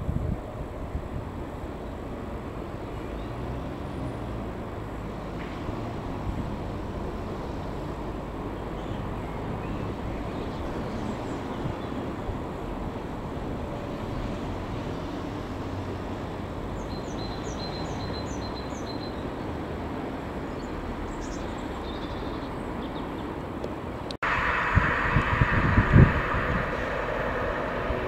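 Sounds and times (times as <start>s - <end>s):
freight train rumbling: 23.8s - 28.0s.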